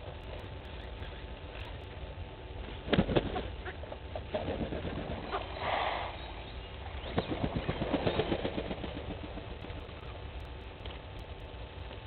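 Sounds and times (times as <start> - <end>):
bird wings flapping: 2.7 - 6.2, 7.0 - 10.1.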